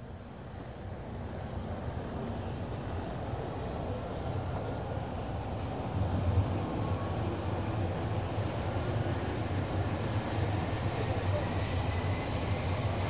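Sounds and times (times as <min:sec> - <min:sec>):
turboprop airliner engines running: 0:00.0 - 0:13.0.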